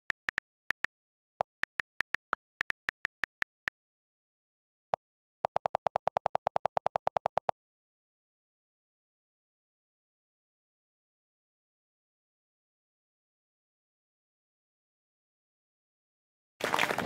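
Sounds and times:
on-screen keyboard typing ticks: 0.0 - 3.7, 5.4 - 7.6
rapid delete key clicks: 0.0 - 3.7, 5.5 - 7.5.

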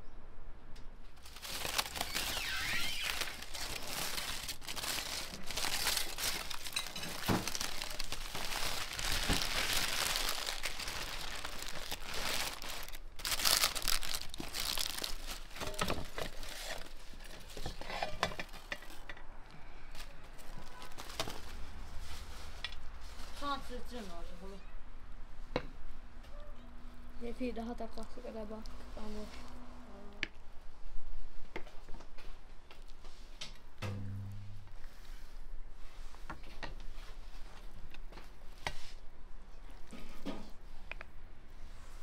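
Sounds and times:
parchment and foil crinkling: 1.2 - 19.0, 19.8 - 24.2.

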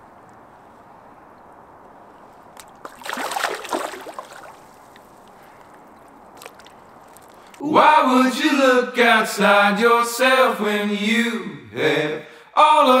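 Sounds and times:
low background wash: 0.0 - 12.9
water splashing and sloshing: 2.0 - 7.6.

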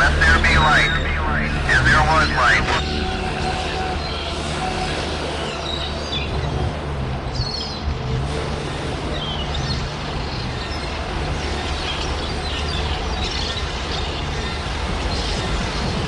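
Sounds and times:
low synth bass drone: 0.0 - 2.8
noisy wash: 0.0 - 2.8.

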